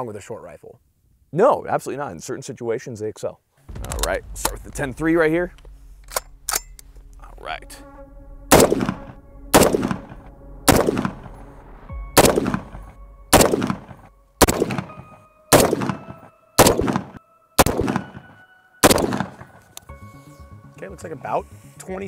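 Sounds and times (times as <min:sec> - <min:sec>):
rifle shots with echo: 0:08.5 - 0:09.0, 0:09.6 - 0:10.1, 0:10.7 - 0:11.3, 0:12.2 - 0:19.6.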